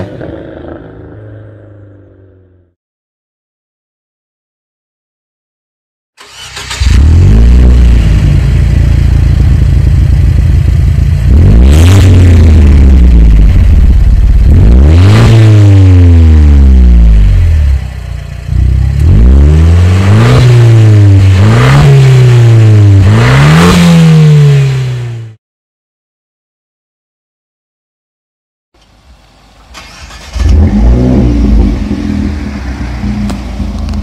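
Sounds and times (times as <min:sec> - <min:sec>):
turbocharged car engine revving: 0:06.2 - 0:25.4, 0:29.8 - 0:34.0.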